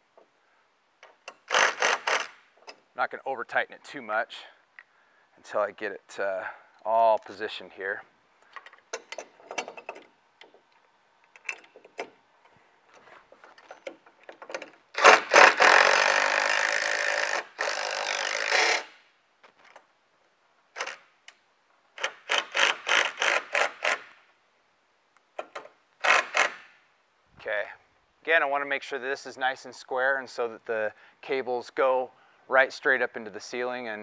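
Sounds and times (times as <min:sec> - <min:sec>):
impact wrench driving screws: 0:01.0 - 0:02.8, 0:13.6 - 0:19.0, 0:20.8 - 0:21.1, 0:22.0 - 0:24.2, 0:25.4 - 0:26.8.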